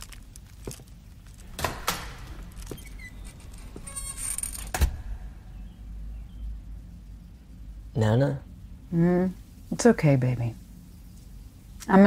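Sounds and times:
door shutting with thud: 1.4 - 5.4.

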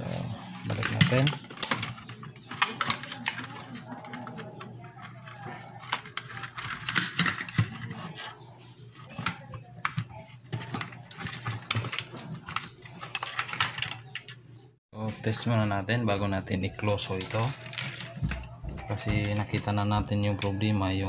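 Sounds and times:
hands clicking and tapping on wiring: 0.6 - 8.3.

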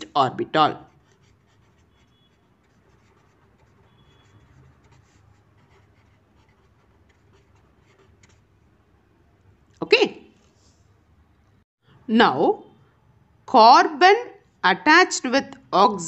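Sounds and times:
felt-tip pen scratching paper: 0.8 - 8.5.

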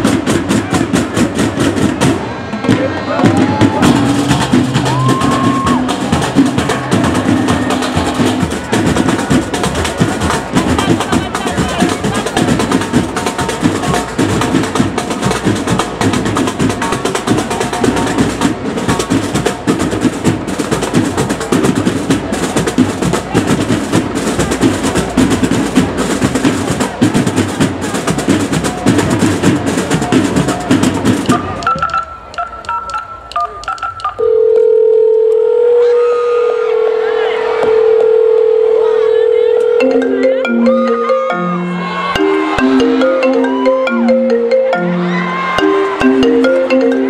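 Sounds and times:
drum corps playing cadence: 0.0 - 34.2, 36.5 - 47.0
faint broken high tone: 34.2 - 42.8
loud steady tone: 34.2 - 44.5.

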